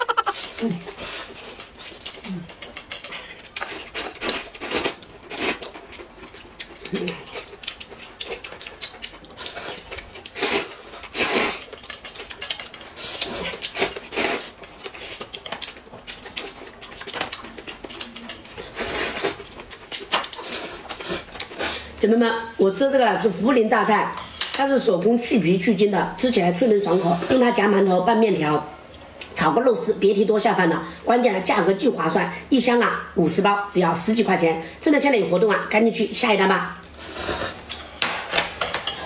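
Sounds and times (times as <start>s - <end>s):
chopsticks clicking on plates: 14.6s - 18.7s.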